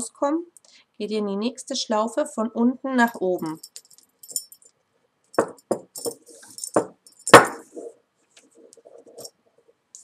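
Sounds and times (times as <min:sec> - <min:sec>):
metal buckle and beads clinking: 0:03.1 - 0:07.9, 0:09.0 - 0:09.4.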